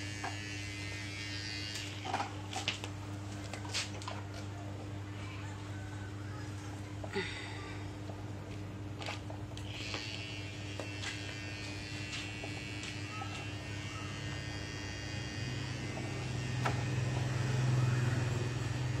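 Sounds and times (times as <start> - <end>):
motor buzzing hum: 0.0 - 3.4, 9.0 - 19.0.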